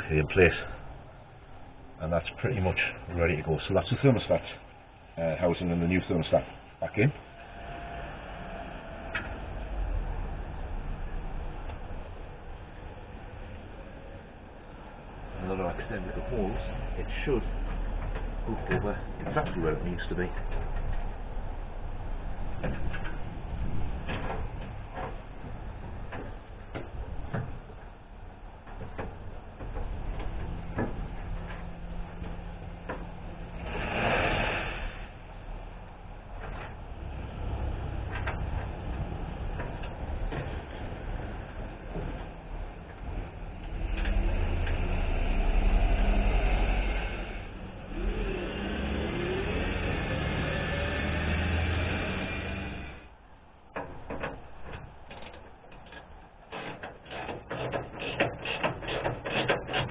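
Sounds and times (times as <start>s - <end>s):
low rumble: 7.2s - 53.6s
metal knocks and scrapes: 53.7s - 59.9s.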